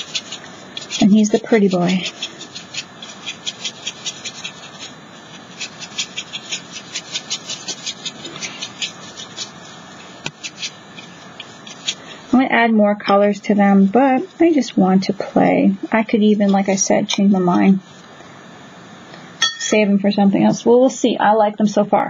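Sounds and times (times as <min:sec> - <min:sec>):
paintbrush scratching on paper: 0:00.0 - 0:12.5, 0:16.0 - 0:18.0.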